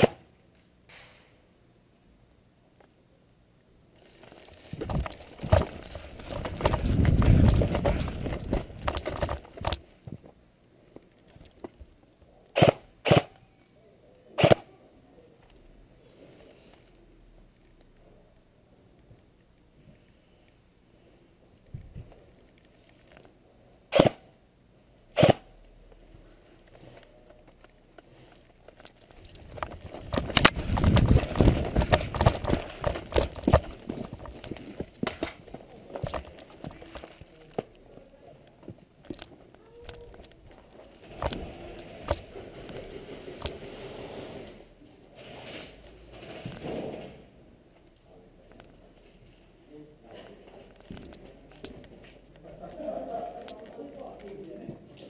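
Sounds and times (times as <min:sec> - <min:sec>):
equipment rattling: 0:04.1 - 0:09.8, 0:28.9 - 0:37.3
running footsteps on wet dirt: 0:04.8 - 0:09.8, 0:29.4 - 0:35.2
heavy low rumble of movement: 0:29.1 - 0:38.1
light steps and ticks: 0:47.7 - 0:55.0.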